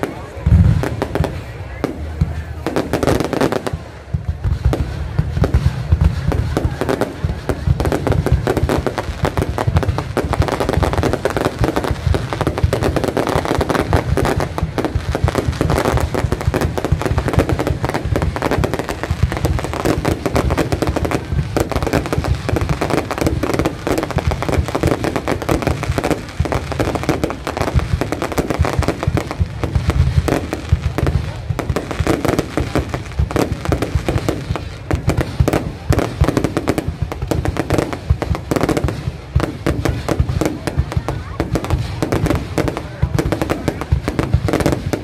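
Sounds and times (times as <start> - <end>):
fireworks bursting and crackling: 0.0 - 45.0.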